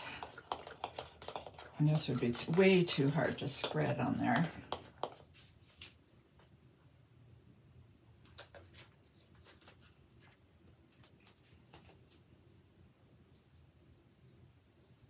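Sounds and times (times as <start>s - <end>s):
sprinkles rattling in shaker jar: 0.0s - 5.5s.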